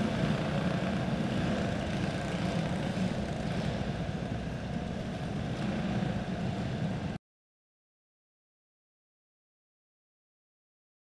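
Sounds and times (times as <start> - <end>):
race car engines droning: 0.0 - 7.2.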